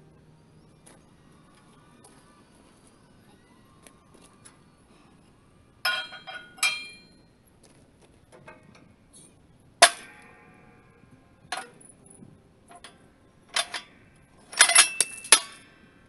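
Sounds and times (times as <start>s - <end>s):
ringing metal clanks: 5.8s - 7.3s, 9.8s - 15.8s.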